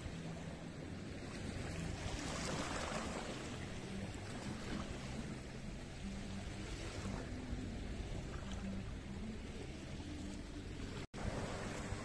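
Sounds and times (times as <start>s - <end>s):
sea surf washing on shore: 0.0s - 12.0s
wave breaking: 10.8s - 12.0s.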